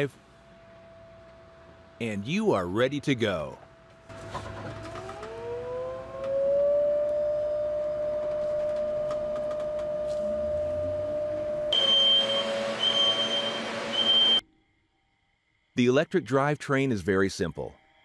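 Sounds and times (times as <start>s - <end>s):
electric bus motor whining: 3.1s - 14.4s.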